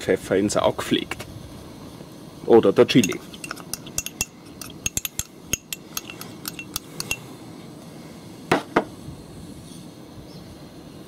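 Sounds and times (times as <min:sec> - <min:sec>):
spoon clinking on ceramic: 0:03.0 - 0:07.2
spoon knocking: 0:03.0 - 0:07.2.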